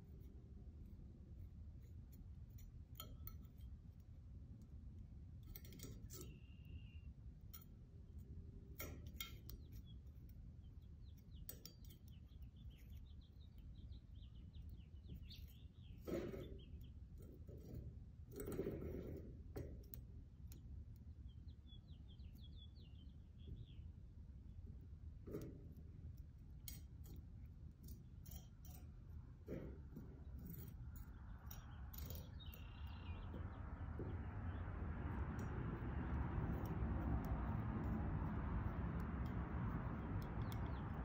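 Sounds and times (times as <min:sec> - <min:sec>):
palette knife scraping metal: 0:00.0 - 0:04.2, 0:05.4 - 0:20.1, 0:25.3 - 0:33.3
low steady rumble: 0:00.0 - 0:41.0
faint bird chirps: 0:06.1 - 0:07.2, 0:21.2 - 0:23.9.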